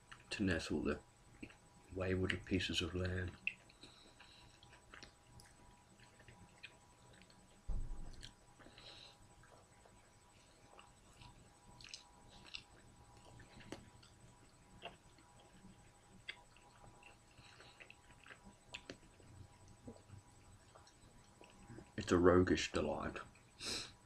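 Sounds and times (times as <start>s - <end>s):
person chewing: 1.3s - 1.7s, 3.3s - 22.0s
dull thump: 7.7s - 8.1s.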